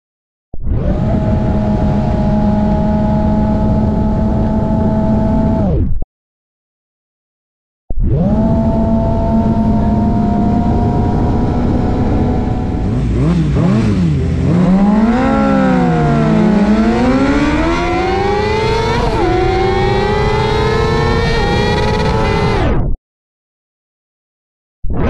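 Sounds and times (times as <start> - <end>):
motorcycle engine revving: 0.8 - 5.6, 8.1 - 22.6.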